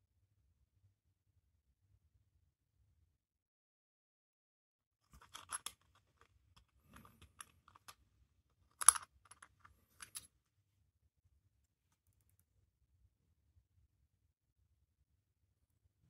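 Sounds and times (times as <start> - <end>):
metallic clicks and scrapes: 5.1 - 8.0, 8.7 - 10.3.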